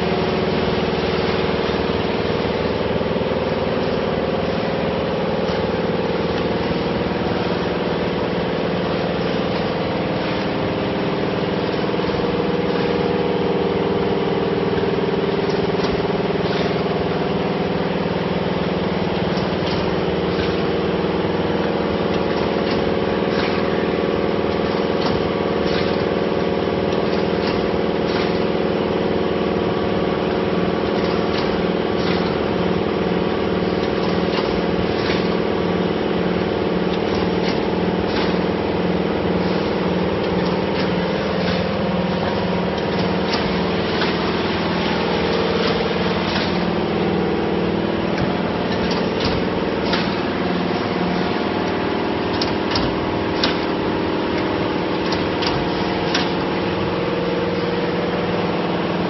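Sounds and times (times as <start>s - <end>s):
machine hum with held tones: 0.0s - 59.0s
sharp mechanism clicks: 48.0s - 57.0s.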